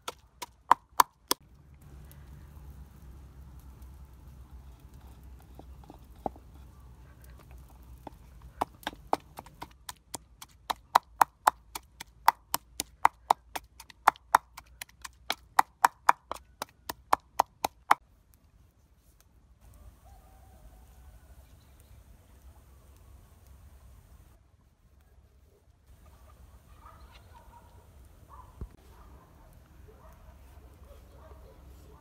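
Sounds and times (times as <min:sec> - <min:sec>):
pestle pounding in clay mortar: 0:00.0 - 0:01.4, 0:08.0 - 0:18.0.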